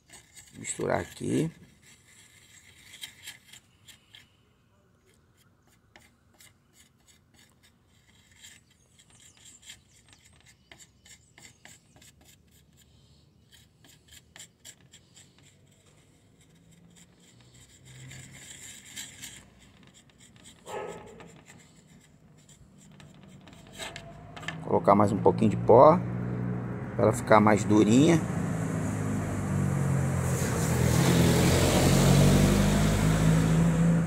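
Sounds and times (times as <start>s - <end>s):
stick scraping putty: 0.0s - 24.8s.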